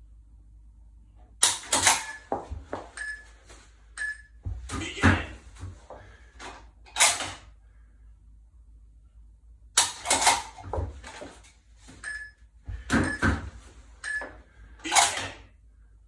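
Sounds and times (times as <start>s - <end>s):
short timer beep: 4.0s - 4.4s, 12.0s - 12.4s.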